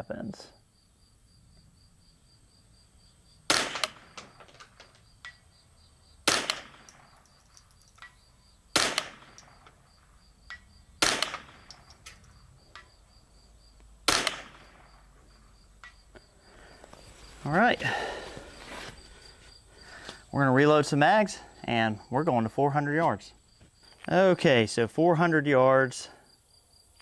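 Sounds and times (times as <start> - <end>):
crickets chirping: 0.0 - 27.0
rifle shots: 3.5 - 4.6, 6.2 - 7.2, 8.7 - 9.8, 11.0 - 11.9, 14.0 - 15.0.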